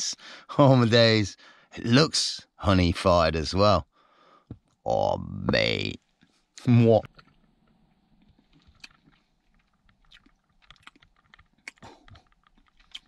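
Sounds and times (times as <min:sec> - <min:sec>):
mouth clicks and smacks: 0:07.0 - 0:13.0.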